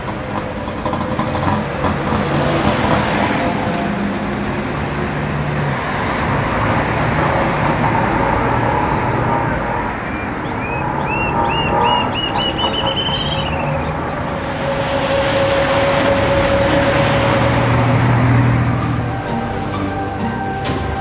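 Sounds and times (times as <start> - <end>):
passing vehicle engines: 0.0 - 21.0
road noise: 0.0 - 21.0
short rising chirps: 10.0 - 20.6.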